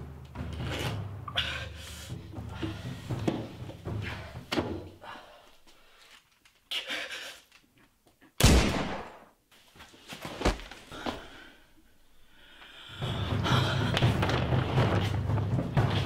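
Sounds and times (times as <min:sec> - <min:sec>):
dramatic film music with deep drum: 0:00.0 - 0:05.1, 0:12.8 - 0:16.0.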